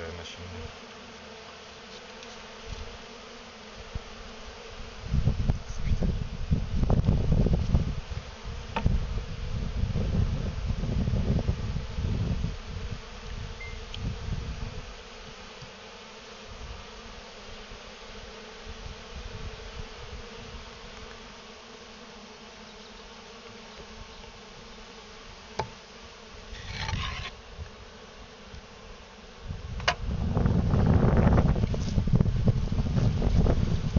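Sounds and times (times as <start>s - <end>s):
bees buzzing: 0.0s - 33.9s.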